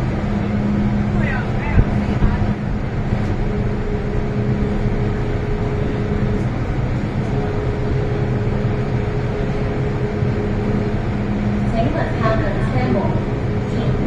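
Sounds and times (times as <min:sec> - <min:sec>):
train equipment and ventilation hum: 0:00.0 - 0:14.0
faint high steady tone: 0:03.3 - 0:14.0.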